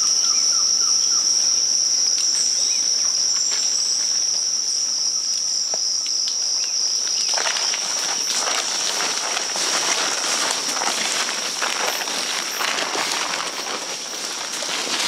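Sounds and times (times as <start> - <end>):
high-pitched insect drone: 0.0 - 15.0
footsteps rustling through undergrowth: 5.8 - 15.0.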